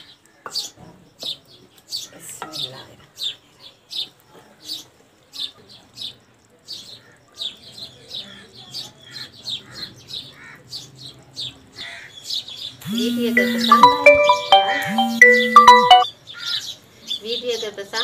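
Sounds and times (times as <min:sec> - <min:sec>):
music with ringing tones: 0:12.9 - 0:16.1.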